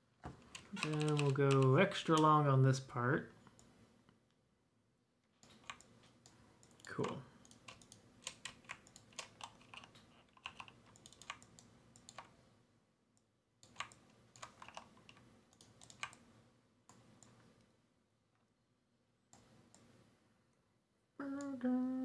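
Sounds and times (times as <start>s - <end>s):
computer keyboard clicking: 0.4s - 2.3s, 5.4s - 5.9s, 6.6s - 12.3s, 13.6s - 16.2s.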